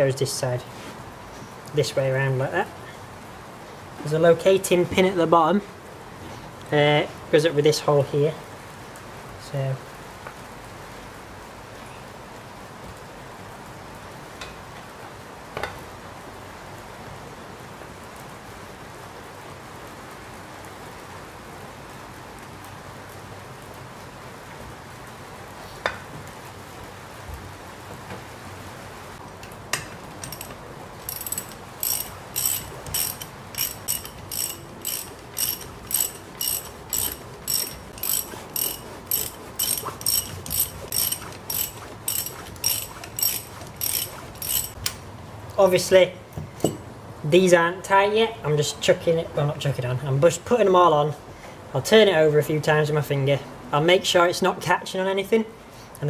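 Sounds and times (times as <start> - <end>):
metal parts knocking: 30.2 - 45.0
socket ratchet clicking: 30.2 - 45.0.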